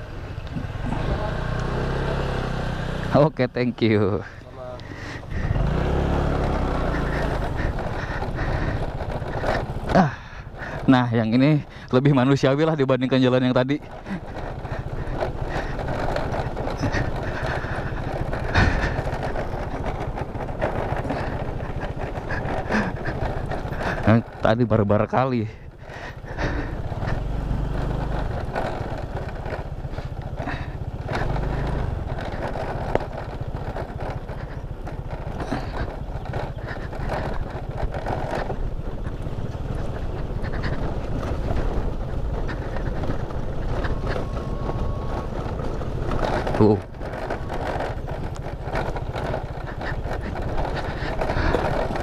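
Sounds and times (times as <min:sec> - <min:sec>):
scooter engine and tyres rumbling: 0:00.0 - 0:52.0
scooter jolt: 0:00.0 - 0:52.0
knocks and rattles: 0:03.1 - 0:52.0
wind buffeting microphone: 0:04.2 - 0:12.0, 0:25.7 - 0:52.0.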